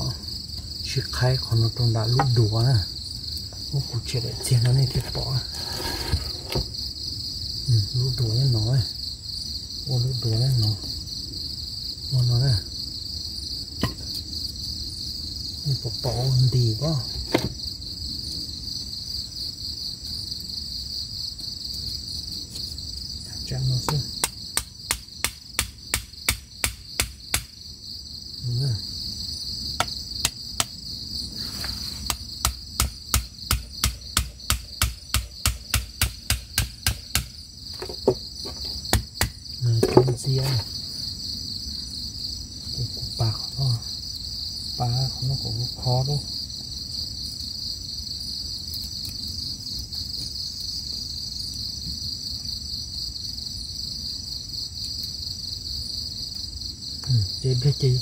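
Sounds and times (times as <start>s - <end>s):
night insects chorus: 0.0s - 58.0s
machete chopping bamboo: 23.9s - 27.5s, 32.1s - 40.1s.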